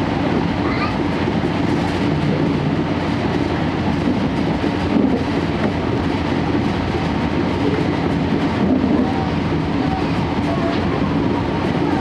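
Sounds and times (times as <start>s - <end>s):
train coach running noise: 0.0s - 12.0s
diesel generator drone: 1.9s - 3.9s.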